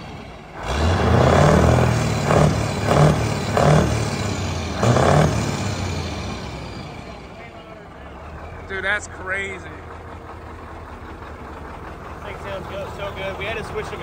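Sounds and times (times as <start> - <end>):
diesel truck engine revving: 0.0 - 14.0.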